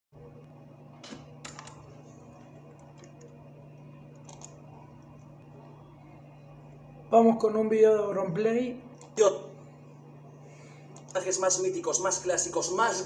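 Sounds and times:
low electrical hum: 0:00.2 - 0:13.0
keyboard clicks: 0:04.2 - 0:04.6.

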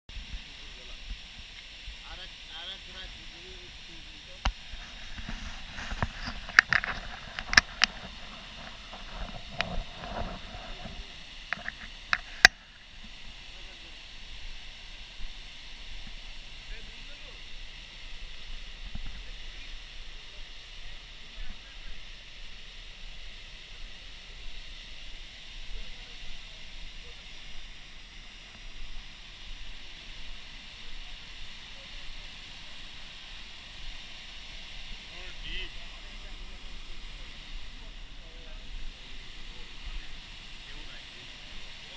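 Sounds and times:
sharp clicks and knocks: 0:05.9 - 0:10.3.

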